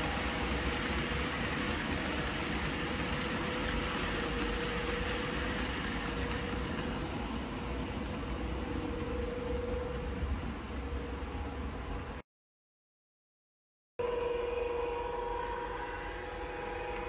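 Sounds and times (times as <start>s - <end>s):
model train rumbling: 0.0s - 12.2s.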